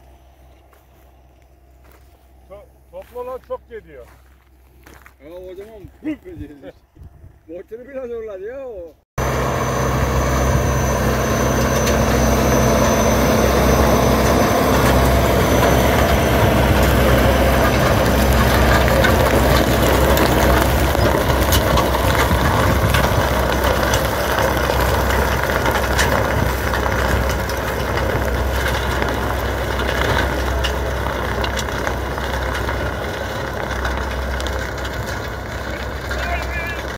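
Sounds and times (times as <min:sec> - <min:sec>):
tractor diesel engine running: 0:00.0 - 0:05.1, 0:09.2 - 0:36.9
manure spreader mechanism: 0:09.2 - 0:36.9.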